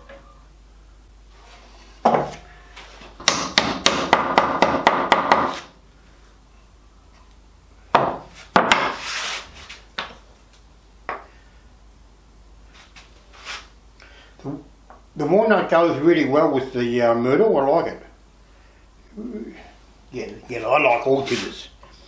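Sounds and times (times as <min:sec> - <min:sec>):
hammer knocking wooden splines: 0:03.2 - 0:05.6.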